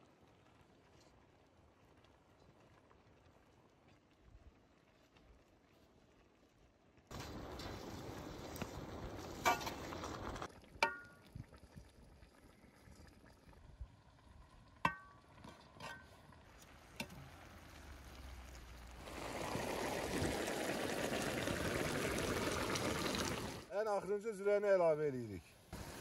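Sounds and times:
broth bubbling: 7.1s - 23.7s
metal skimmer clinking on pot: 14.9s - 15.2s.

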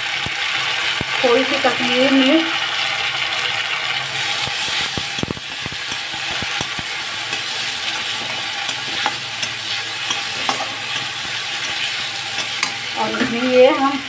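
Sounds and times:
onions sizzling in hot oil: 0.0s - 14.0s
metal spatula scraping a pan: 4.1s - 13.8s.

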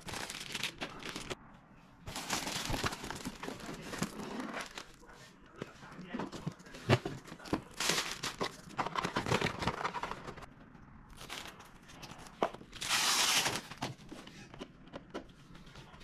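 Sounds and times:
plastic packaging crinkling: 0.0s - 1.4s, 2.1s - 5.0s, 7.3s - 10.5s
plastic ripping: 0.0s - 1.4s, 12.8s - 13.8s.

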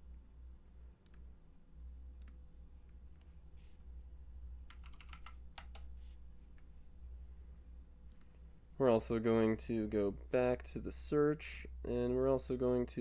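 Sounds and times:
faint low hum: 0.0s - 13.0s
computer keyboard keystrokes: 4.7s - 5.9s
clicks: 8.1s - 8.4s.

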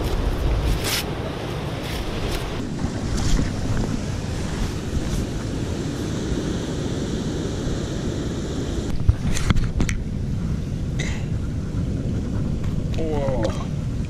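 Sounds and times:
surf washing over rocky shore: 0.0s - 9.9s
wind blowing on microphone: 0.0s - 14.0s.

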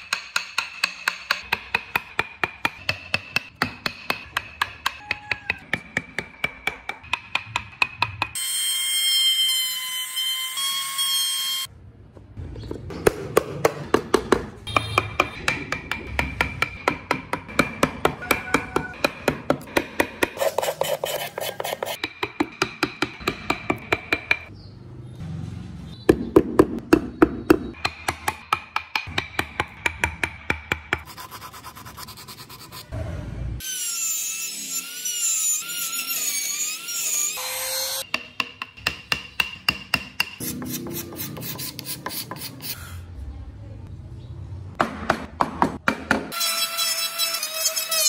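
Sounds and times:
mallet tapping chisel into wood: 0.0s - 8.4s, 38.1s - 40.4s.

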